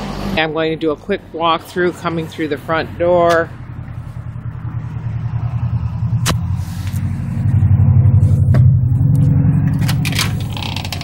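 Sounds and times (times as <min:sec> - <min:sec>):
vehicle engine rumbling: 0:00.0 - 0:11.0.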